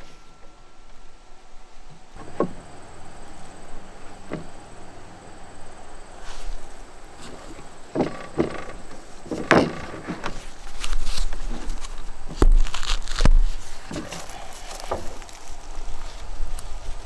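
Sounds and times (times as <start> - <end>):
wooden boards knocking and scraping: 2.2 - 3.3, 4.1 - 4.8, 6.8 - 15.4.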